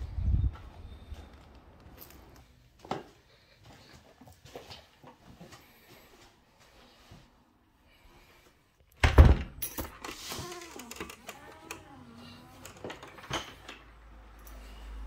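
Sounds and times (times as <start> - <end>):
door creaking: 9.0 - 13.8.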